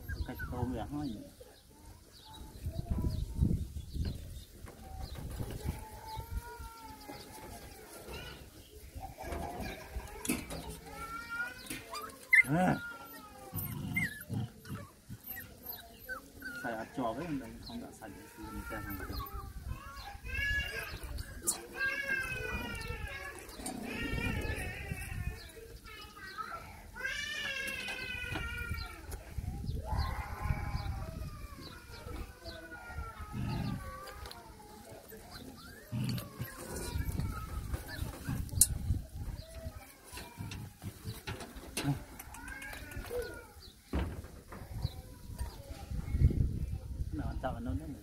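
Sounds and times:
dog whining: 0:00.0 - 0:00.8, 0:10.5 - 0:17.4, 0:18.4 - 0:25.5, 0:30.8 - 0:38.7.

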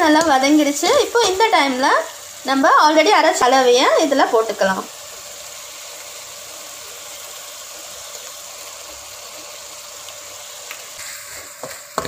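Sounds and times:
gravy sizzling in oil: 0:00.0 - 0:12.0
spoon knocking on a pan: 0:11.6 - 0:12.0.

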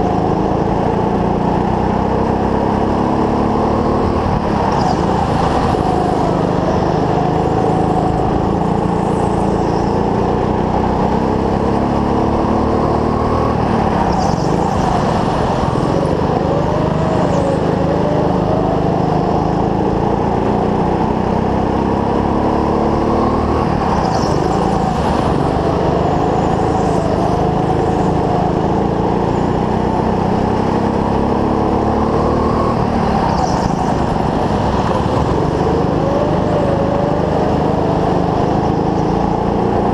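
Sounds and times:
go-kart engine running hard: 0:00.0 - 0:39.9.

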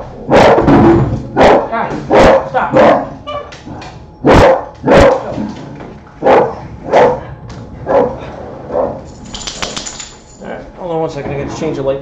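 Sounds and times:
dog barking: 0:00.3 - 0:00.7, 0:01.4 - 0:03.2, 0:04.2 - 0:05.4, 0:06.2 - 0:09.0.

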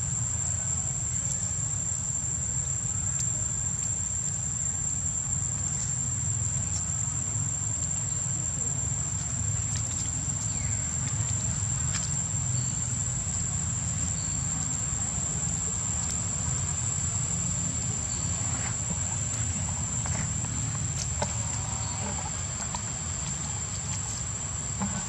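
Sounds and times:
high-pitched insect drone: 0:09.8 - 0:25.0.

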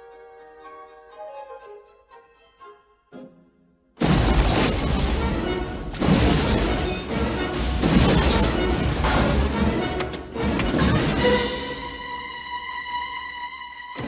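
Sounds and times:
background music: 0:00.0 - 0:14.0
heavy crashing and smashing: 0:04.0 - 0:09.8.

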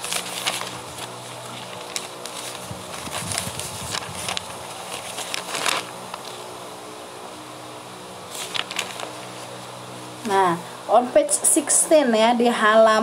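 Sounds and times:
paper pages rustling: 0:00.0 - 0:06.4, 0:08.3 - 0:09.6
faint steady hum: 0:00.0 - 0:13.0.

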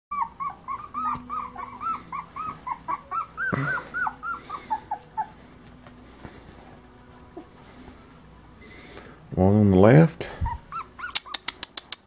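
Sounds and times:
puppies whimpering: 0:00.1 - 0:05.7, 0:10.3 - 0:11.6.

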